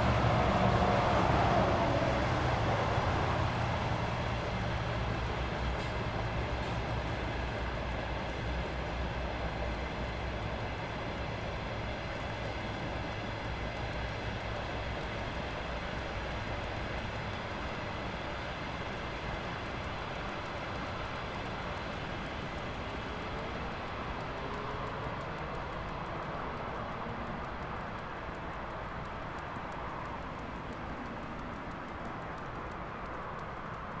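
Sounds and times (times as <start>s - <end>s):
passing vehicle engine rumble: 0.0s - 15.2s.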